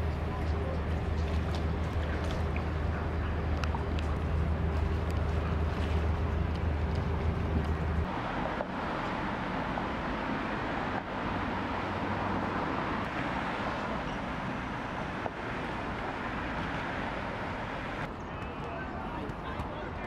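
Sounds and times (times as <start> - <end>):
low mechanical hum: 0.0 - 8.1.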